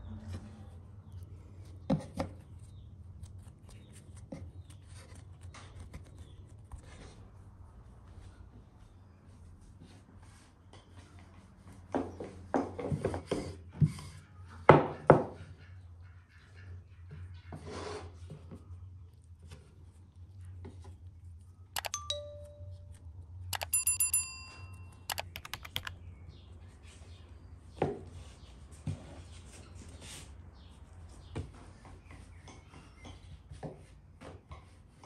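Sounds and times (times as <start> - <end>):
bright bell-like chime: 21.8 - 23.0, 23.6 - 25.5
sound effect clicks and tone: 21.8 - 23.0, 23.6 - 25.9.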